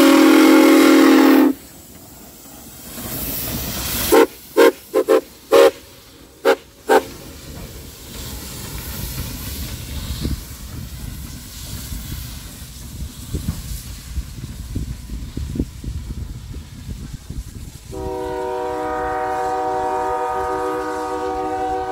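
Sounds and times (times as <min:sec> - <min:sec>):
steam whistle toots: 0:00.0 - 0:01.6, 0:04.1 - 0:07.1, 0:17.9 - 0:21.9
steam hiss: 0:00.0 - 0:21.9.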